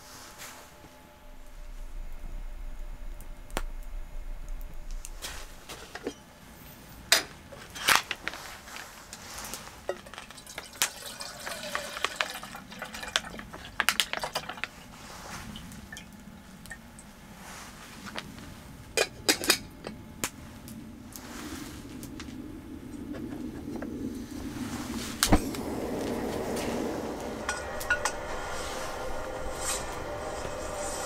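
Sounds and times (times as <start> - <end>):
liquid pouring into kettle: 10.0 - 14.7.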